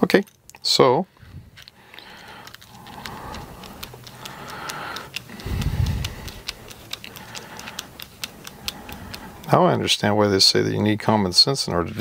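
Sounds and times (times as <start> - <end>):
small metal clicks: 1.6 - 9.6.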